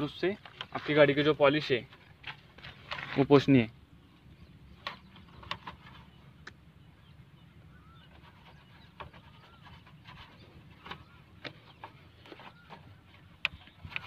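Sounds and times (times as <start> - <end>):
faint bird chirps: 3.8 - 14.0.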